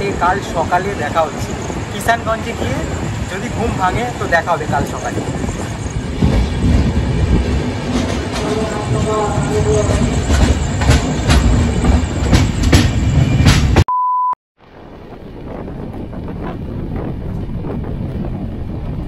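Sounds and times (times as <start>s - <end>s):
wind buffeting microphone: 0.0s - 13.6s, 14.6s - 19.0s
train wheels rumbling: 0.0s - 13.8s
short steady beep: 13.9s - 14.4s.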